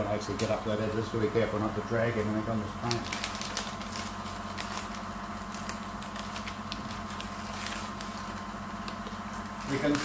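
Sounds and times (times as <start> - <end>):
steady low hum: 0.0 - 10.0
masking tape peeling crackle: 2.8 - 10.0.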